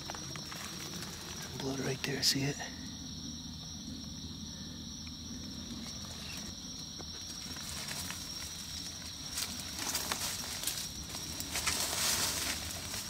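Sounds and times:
faint rustles: 0:00.0 - 0:02.9, 0:05.6 - 0:13.0
insects droning: 0:00.0 - 0:13.0.

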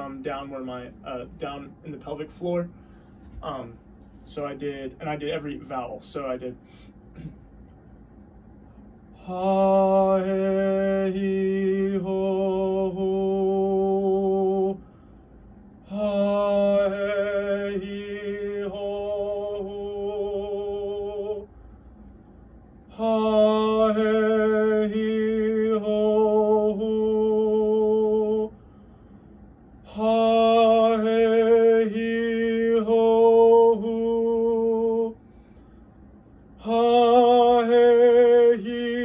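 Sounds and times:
man singing long vowel notes: 0:09.2 - 0:14.8, 0:15.9 - 0:21.5, 0:22.9 - 0:28.6, 0:29.9 - 0:35.2, 0:36.6 - 0:39.0.

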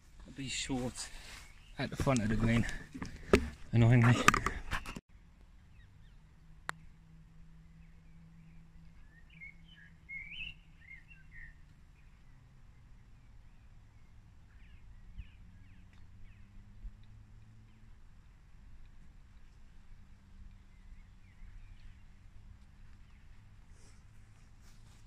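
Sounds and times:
birds chirping: 0:00.3 - 0:05.0, 0:07.7 - 0:24.8
putter striking golf ball: 0:03.0 - 0:04.6.

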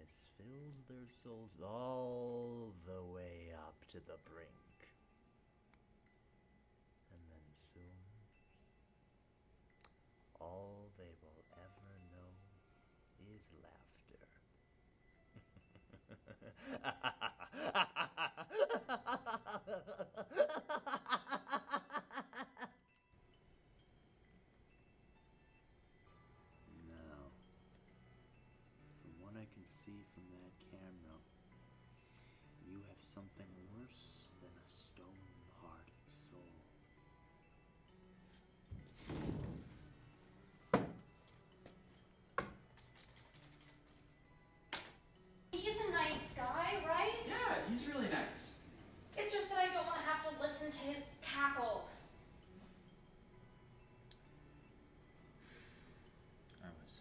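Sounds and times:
man cackling laugh: 0:15.4 - 0:22.8.

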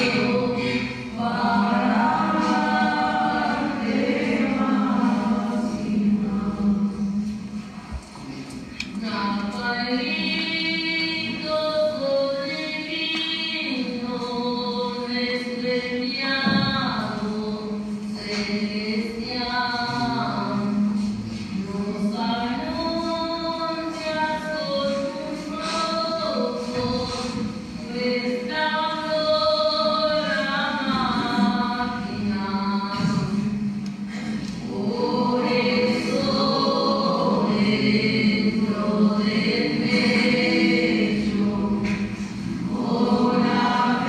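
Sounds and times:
group of voices singing: 0:00.0 - 0:07.3, 0:34.1 - 0:44.0.

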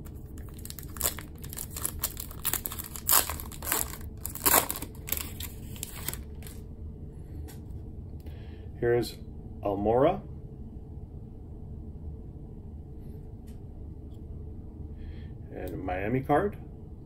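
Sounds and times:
foil wrapper crinkling and tearing: 0:00.0 - 0:06.6.

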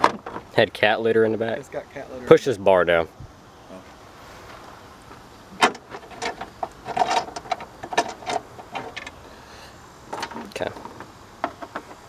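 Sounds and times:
metal rod clanking and rattling: 0:05.6 - 0:09.2, 0:10.1 - 0:12.0.

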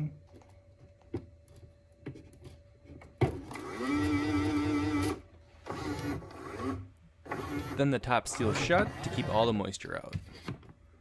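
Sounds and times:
feeder motor whine: 0:03.4 - 0:07.8.

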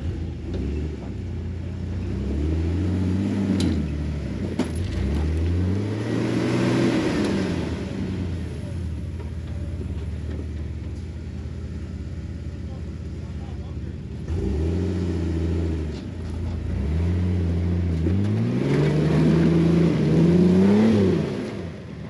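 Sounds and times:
engine revving: 0:00.0 - 0:09.0, 0:13.4 - 0:22.0.

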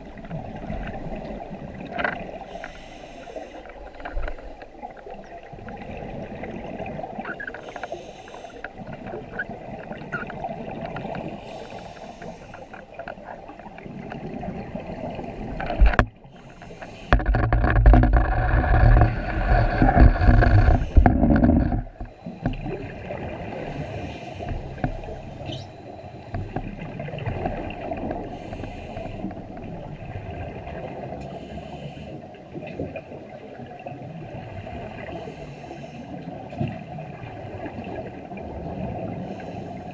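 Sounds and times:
diver inhaling through regulator: 0:02.5 - 0:04.6, 0:07.6 - 0:08.7, 0:11.4 - 0:12.9, 0:16.3 - 0:17.6, 0:18.6 - 0:22.4, 0:28.2 - 0:29.3
bubbling rush of exhaled air: 0:17.0 - 0:22.1.

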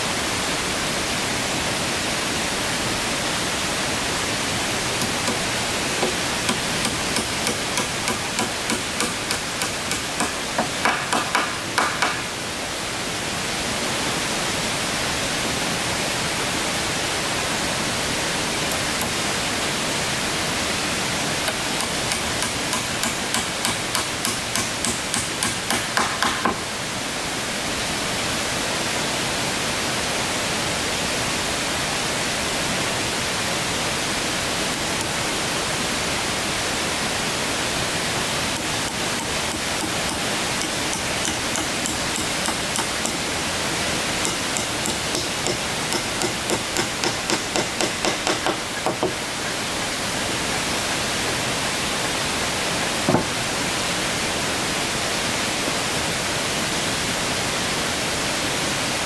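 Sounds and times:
steady hiss: 0:00.0 - 0:59.0
hammer tapping on wood: 0:05.0 - 0:05.4, 0:06.0 - 0:12.3, 0:21.4 - 0:26.6, 0:38.9 - 0:43.2, 0:44.2 - 0:49.2.

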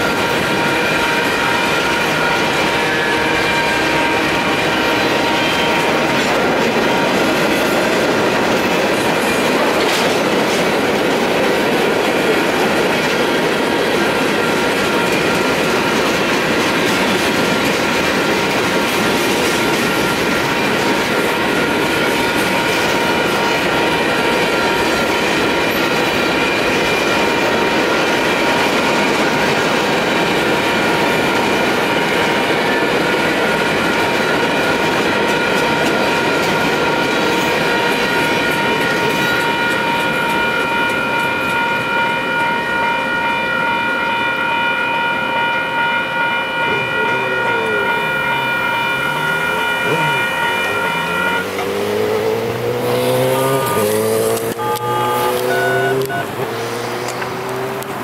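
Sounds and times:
freight train wheels clattering: 0:00.0 - 0:42.6
crossing bells ringing: 0:00.0 - 0:58.0.

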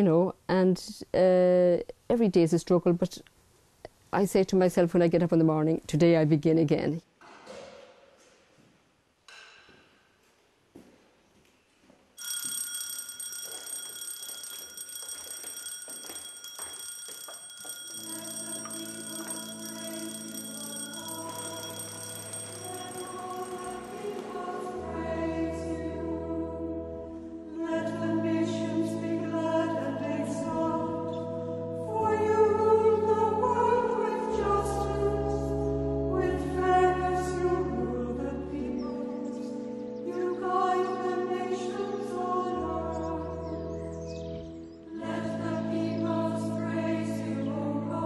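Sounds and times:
bell ringing: 0:12.2 - 0:24.6
organ chords: 0:17.7 - 0:48.0
choir singing: 0:18.0 - 0:39.4, 0:40.0 - 0:43.6, 0:44.9 - 0:48.0.

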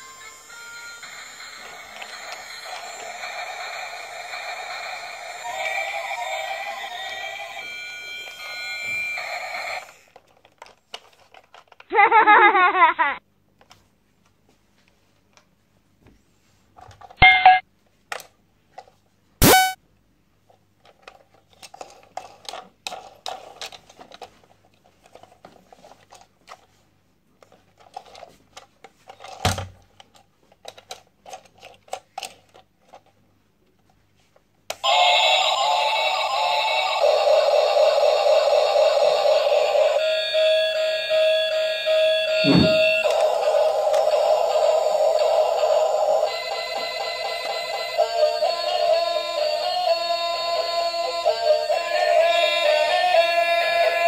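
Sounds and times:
toy electronic tune: 0:00.0 - 0:10.0, 0:19.4 - 0:19.8, 0:34.8 - 0:54.0
plastic toy clicks and rattles: 0:10.1 - 0:11.9, 0:20.8 - 0:26.7, 0:27.4 - 0:33.2
short electronic beep: 0:17.2 - 0:17.6, 0:19.4 - 0:19.8, 0:42.4 - 0:43.0.

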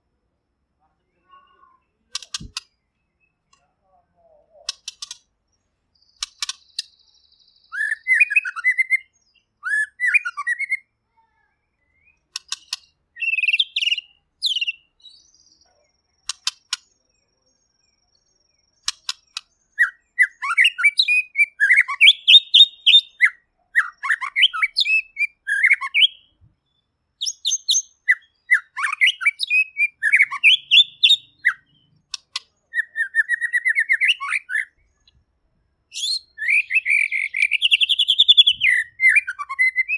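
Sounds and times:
sharp bird clicks: 0:02.1 - 0:03.7, 0:04.6 - 0:07.0, 0:12.0 - 0:15.2, 0:16.1 - 0:17.2, 0:18.6 - 0:25.0, 0:27.2 - 0:35.2
bird singing whistled phrases: 0:06.6 - 0:10.9, 0:13.2 - 0:15.6, 0:19.7 - 0:26.3, 0:27.2 - 0:31.9, 0:32.6 - 0:34.9, 0:35.9 - 0:39.9
fast bird trill: 0:07.6 - 0:10.8, 0:12.4 - 0:14.9, 0:18.8 - 0:26.3, 0:27.2 - 0:34.8, 0:35.9 - 0:39.9.

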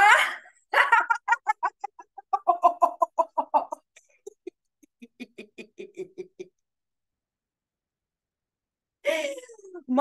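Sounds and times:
woman laughing: 0:00.0 - 0:06.6.

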